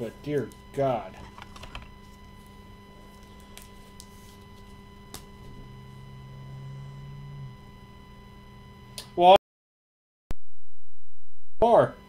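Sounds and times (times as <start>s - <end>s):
low electrical hum: 0.0s - 9.4s
low steady tone: 2.0s - 9.2s.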